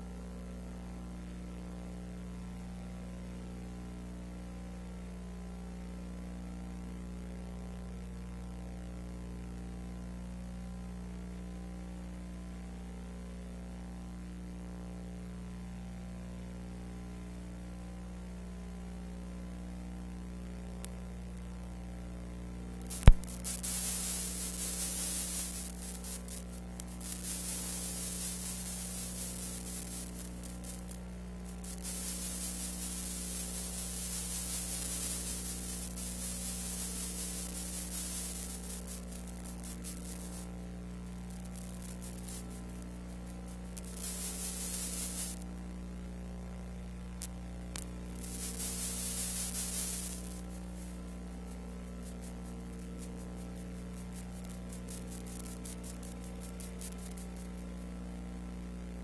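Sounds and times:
electrical hum: 20.4 - 59.0
sharp click: 22.9 - 23.4
hiss: 22.9 - 40.6, 41.3 - 45.4, 47.8 - 57.5.

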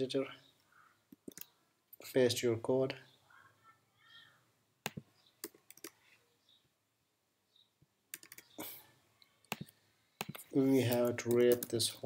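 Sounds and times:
computer keys and mouse clicks: 1.1 - 1.5, 4.8 - 6.0, 8.1 - 8.6, 9.4 - 11.8.

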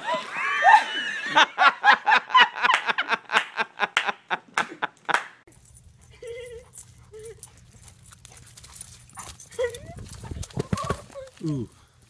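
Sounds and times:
person laughing hard: 0.0 - 5.2.

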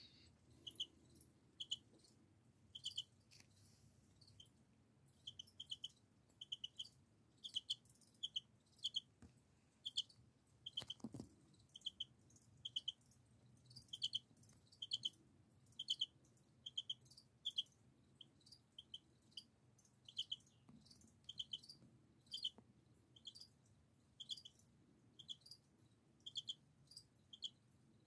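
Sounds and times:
crickets chirping: 0.0 - 3.1.

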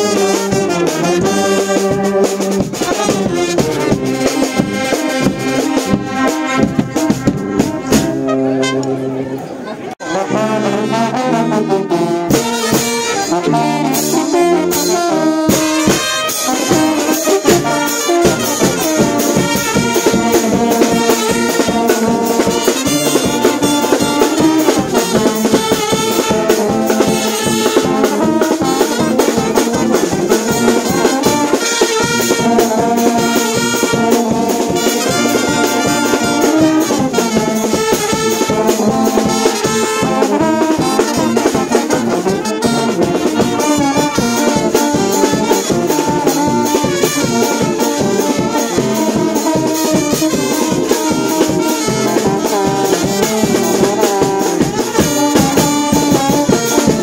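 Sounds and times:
brass band playing: 0.0 - 57.0.

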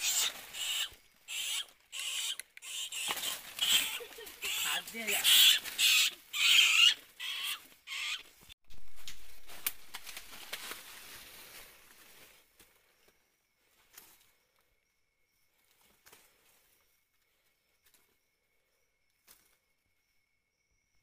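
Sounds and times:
dry leaves rustling and crackling: 2.9 - 6.3, 8.7 - 12.5.

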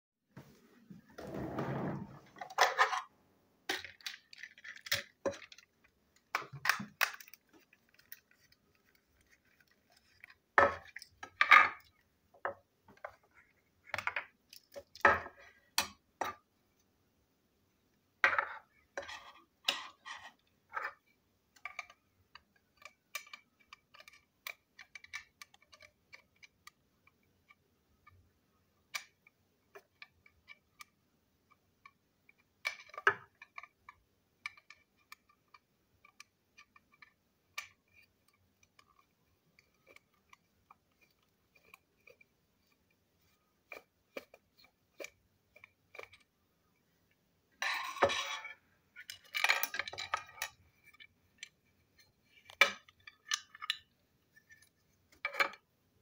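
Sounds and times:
plastic toy clicks and knocks: 3.7 - 13.2, 19.0 - 42.8, 47.6 - 51.6, 52.3 - 54.0.

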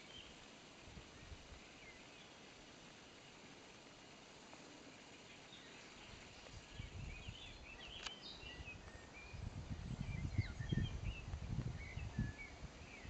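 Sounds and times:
songbirds chirping: 0.0 - 13.0
wind buffeting microphone: 6.1 - 13.0
sharp click: 7.9 - 8.2.

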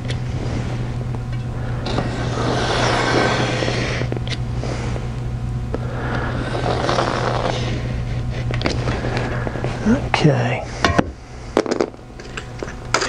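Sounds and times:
low hum: 0.0 - 13.0
knife scraping through foam board: 1.9 - 4.1.

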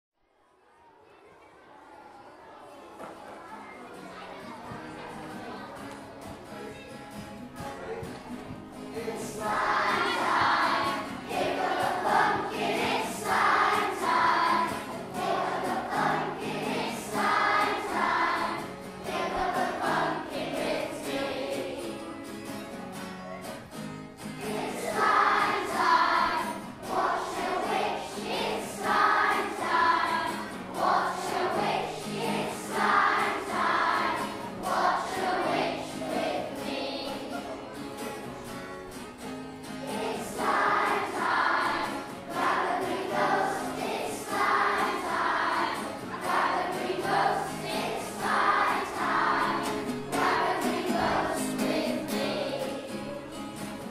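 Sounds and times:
backing music in minor key: 4.7 - 53.9
choir singing: 8.9 - 22.3, 24.4 - 37.8, 39.8 - 53.9.

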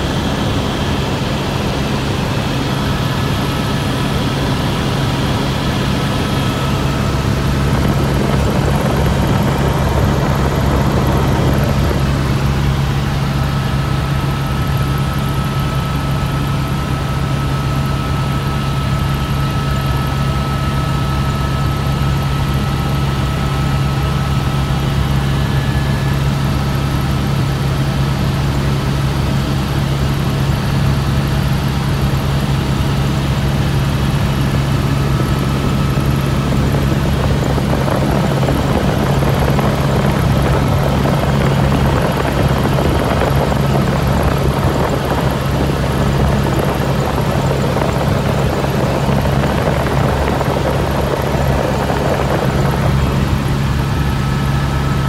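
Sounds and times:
helicopter rotor and engine drone: 0.0 - 55.0.

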